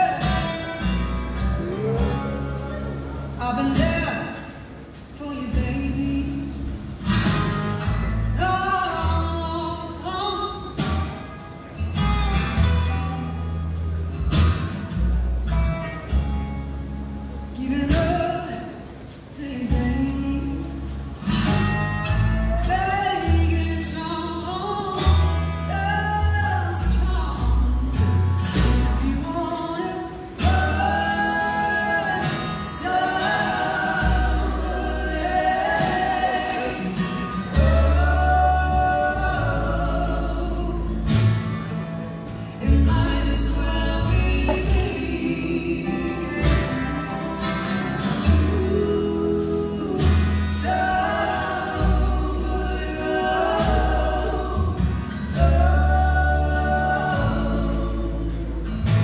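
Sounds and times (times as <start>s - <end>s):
lead vocals with harmony voices: 0.0s - 11.4s, 17.3s - 59.0s
acoustic guitar strumming: 0.0s - 59.0s
upright double bass notes: 0.0s - 59.0s.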